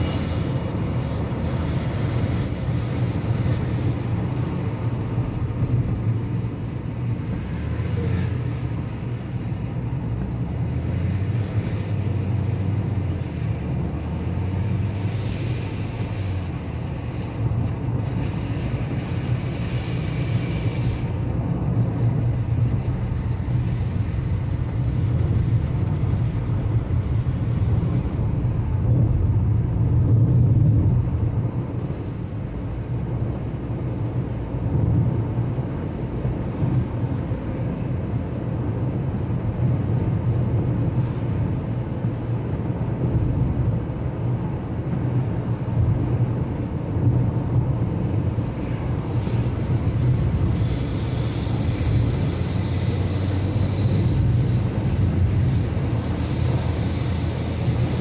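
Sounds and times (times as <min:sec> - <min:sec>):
car engine and tyres rumbling: 0:00.0 - 0:58.0
water spray hiss from wet road: 0:00.0 - 0:58.0.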